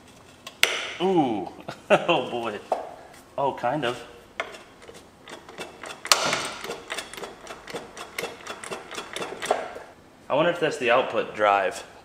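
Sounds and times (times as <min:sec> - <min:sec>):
crunchy grinding: 0:03.9 - 0:10.0
engine turned over by hand clicking: 0:05.3 - 0:09.8.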